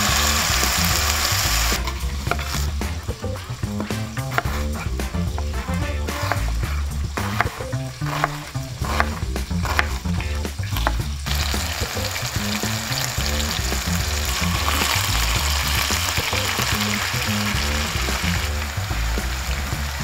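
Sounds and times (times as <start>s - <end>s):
patties sizzling in a pan: 0.0s - 20.0s
knife chopping on wooden board: 3.8s - 10.0s.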